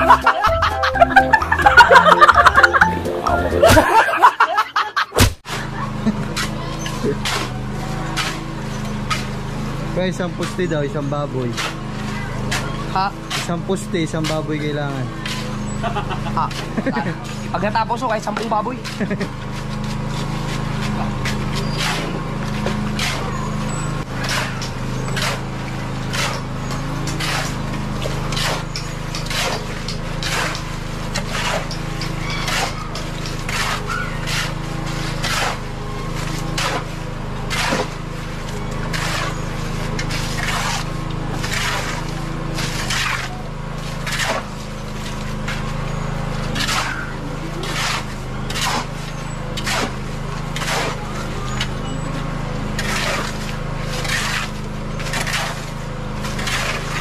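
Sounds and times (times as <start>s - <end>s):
steady low drone: 0.0s - 4.2s
shovels scraping wet concrete: 5.4s - 57.0s.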